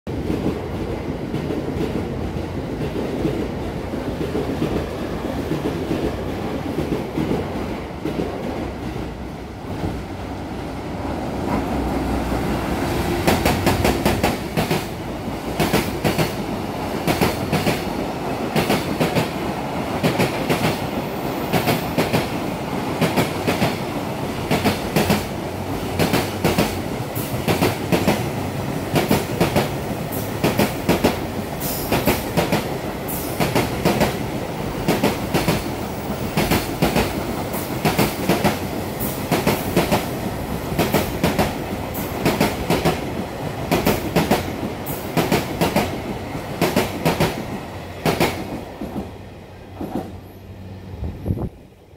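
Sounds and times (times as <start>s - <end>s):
train wheels clickety-clack: 0.1s - 9.1s, 11.1s - 50.4s
train wheels rumbling on rail: 0.1s - 51.8s.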